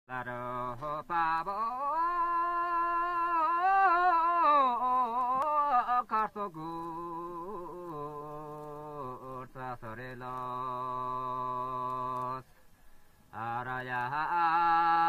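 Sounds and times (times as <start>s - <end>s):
person singing chant-like melody: 0.1s - 15.0s.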